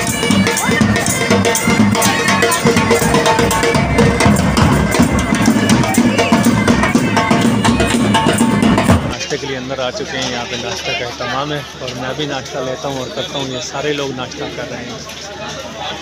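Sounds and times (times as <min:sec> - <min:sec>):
bagpipes playing: 0:00.0 - 0:09.2
bass drum beating: 0:00.0 - 0:09.2.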